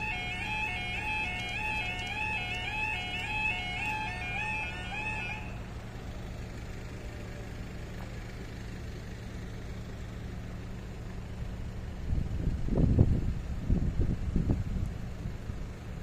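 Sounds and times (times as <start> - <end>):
level crossing alarm warbling: 0.0 - 5.7.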